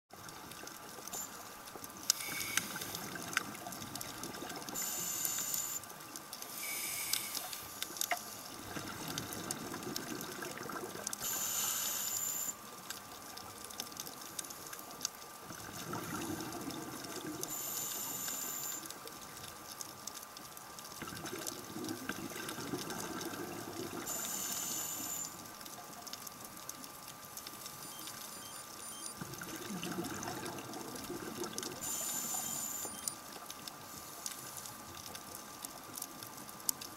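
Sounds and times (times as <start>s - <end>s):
exhaled bubbles rumbling: 2.8s - 4.7s, 8.6s - 11.2s, 15.4s - 17.5s, 20.8s - 24.1s, 29.2s - 32.6s
regulator inhalation hiss: 4.8s - 7.8s, 11.2s - 12.6s, 17.5s - 18.9s, 24.1s - 25.4s, 31.8s - 32.9s.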